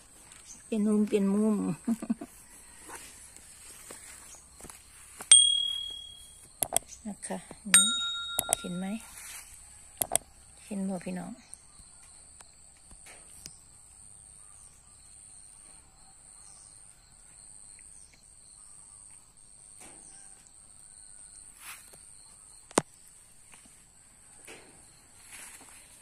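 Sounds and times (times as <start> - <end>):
insects trilling: 0.0 - 26.0
sharp click: 5.3 - 7.0, 7.8 - 8.8, 10.0 - 10.2.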